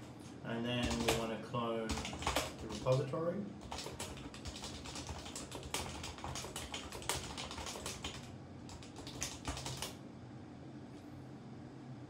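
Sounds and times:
faint low hum: 0.0 - 12.0
typing on computer keyboard: 0.8 - 1.3, 1.9 - 10.0.

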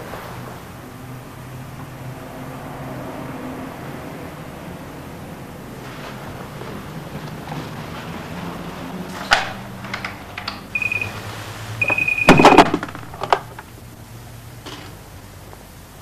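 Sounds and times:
telephone ringing: 10.7 - 12.8.

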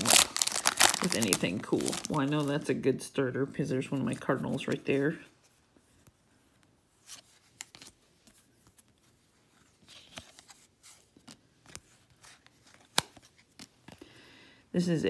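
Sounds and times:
card snapping: 12.8 - 13.7.

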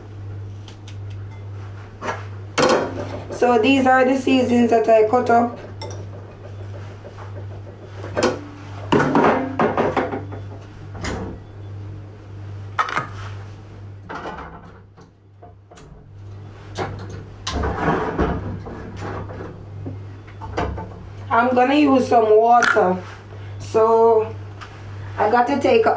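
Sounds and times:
dishes and utensils clinking: 5.6 - 7.5.

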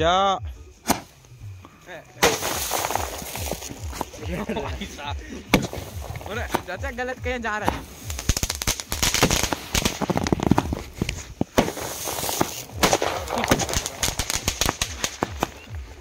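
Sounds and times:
loud firework bangs: 2.2 - 4.1, 5.5 - 6.9, 7.6 - 15.7
fireworks bursting: 2.2 - 16.0.

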